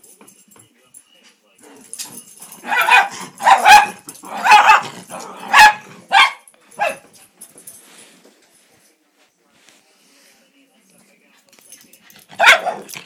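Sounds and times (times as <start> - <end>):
dog barking: 2.6 - 7.0, 12.4 - 13.0.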